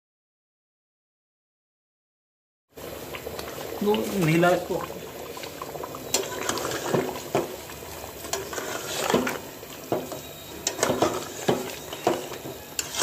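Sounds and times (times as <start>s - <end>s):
metal spatula scraping a pot: 6.1s - 13.0s.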